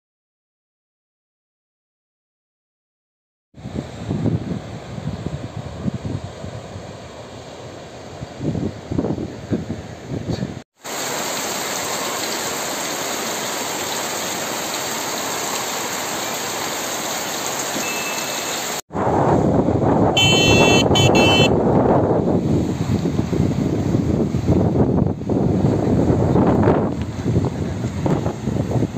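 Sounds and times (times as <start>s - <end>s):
wind buffeting microphone: 3.6s - 7.1s, 8.1s - 10.6s, 18.9s - 28.9s
heavy rain falling: 10.8s - 18.8s
water streaming off eaves: 10.8s - 18.9s
broken high-pitched tone: 20.2s - 21.5s.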